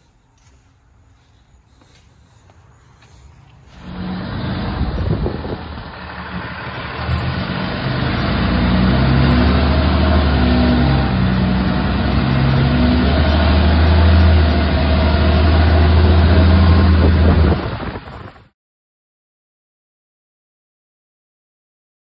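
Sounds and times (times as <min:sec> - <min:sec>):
truck engine running: 0:01.8 - 0:18.4.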